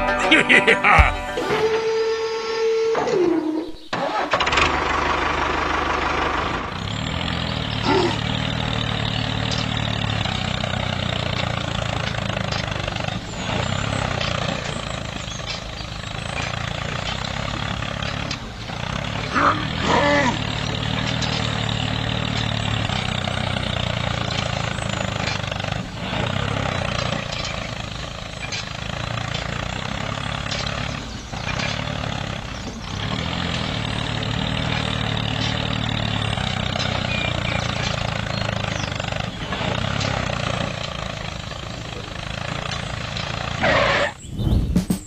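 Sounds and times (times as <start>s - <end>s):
tractor engine running: 0.0s - 45.0s.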